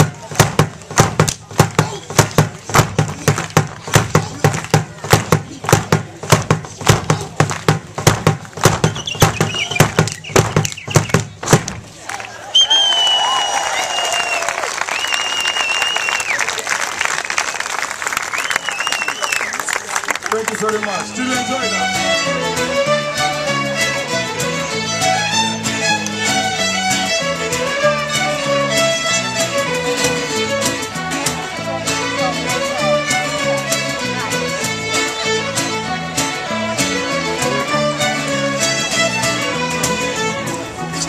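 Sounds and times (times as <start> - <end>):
acoustic guitar: 0.0 - 11.9, 21.2 - 41.0
drum beaten in sharp strokes: 0.0 - 11.9
dancers stamping feet: 0.0 - 12.0
violins playing folk tune: 0.0 - 12.0, 20.3 - 41.0.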